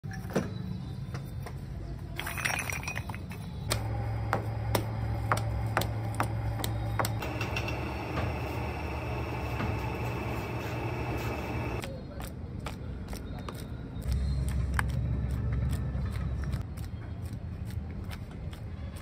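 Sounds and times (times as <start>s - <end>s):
low hum: 3.7s - 11.8s.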